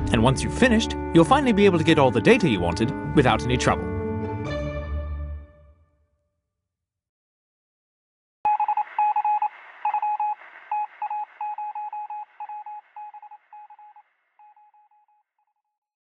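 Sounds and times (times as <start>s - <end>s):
short electronic beeps: 8.5s - 15.0s.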